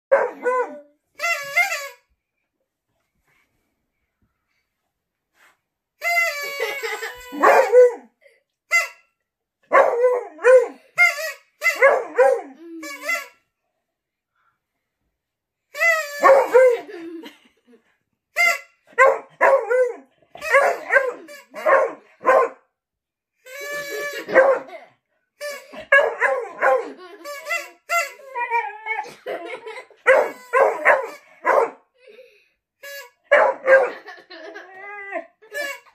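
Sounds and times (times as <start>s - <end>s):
dog barking: 0.1s - 0.8s, 9.7s - 10.7s, 16.2s - 16.8s, 19.0s - 22.6s, 24.3s - 24.7s, 25.9s - 27.0s, 30.1s - 31.8s, 33.3s - 34.0s.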